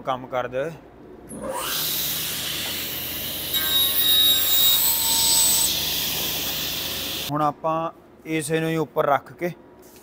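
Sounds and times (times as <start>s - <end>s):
panel saw motor whirring: 1.3s - 7.3s
saw blade cutting board: 1.5s - 7.3s.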